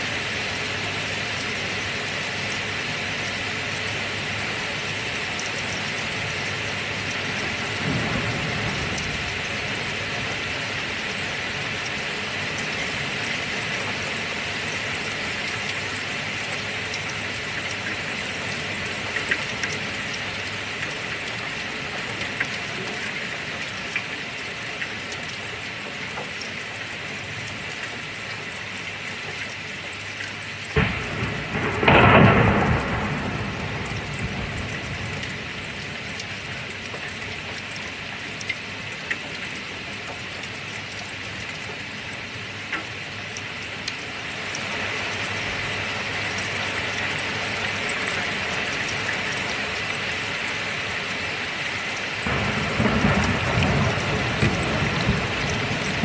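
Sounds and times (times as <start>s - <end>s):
heavy rain hissing: 6.1s - 19.2s, 30.8s - 36.8s, 44.1s - 56.0s
thunderclap rumbling: 30.8s - 35.6s, 52.3s - 56.0s.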